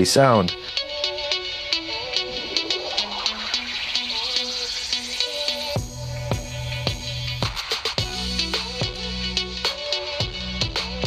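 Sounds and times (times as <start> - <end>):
electronic music through headphones: 0.0 - 11.0
heavy bass line and kick drum: 5.6 - 11.0.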